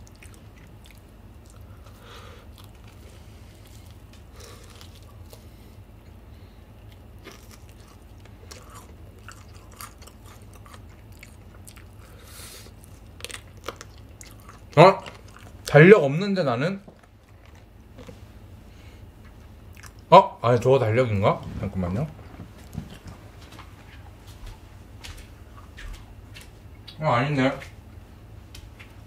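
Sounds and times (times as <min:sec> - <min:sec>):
chewing crunchy fried chicken: 0:00.0 - 0:15.9, 0:16.8 - 0:20.1.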